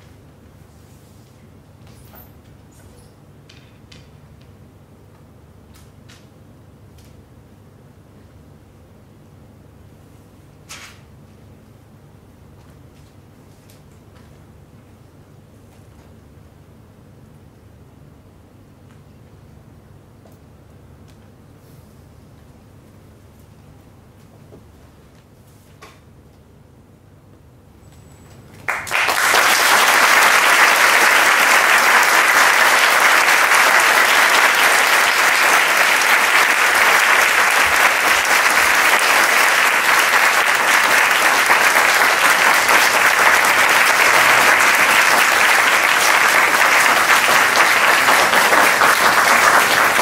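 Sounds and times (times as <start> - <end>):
audience applause: 28.7 - 50.0.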